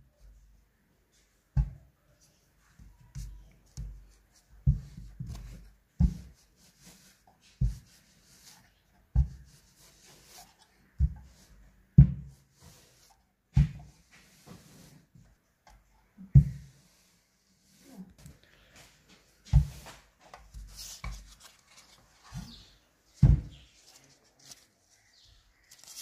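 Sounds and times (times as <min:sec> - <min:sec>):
faint rubbing: 0:02.1 - 0:11.7, 0:16.6 - 0:26.0
iron thumping on carpet: 0:06.0 - 0:06.4, 0:12.0 - 0:12.4, 0:13.5 - 0:13.9.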